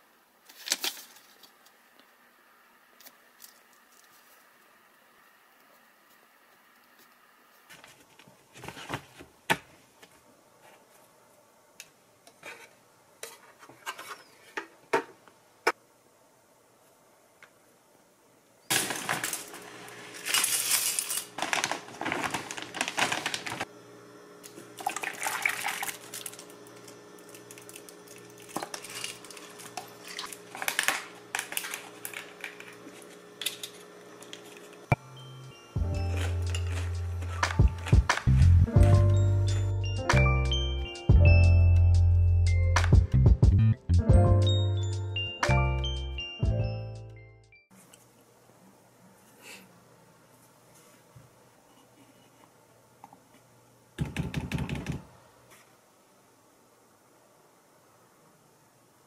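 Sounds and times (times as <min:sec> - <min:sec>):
paper pages turning: 0:00.4 - 0:01.6, 0:18.7 - 0:23.7, 0:27.4 - 0:34.9, 0:36.1 - 0:38.6
cereal poured into glass bowl: 0:18.7 - 0:23.6.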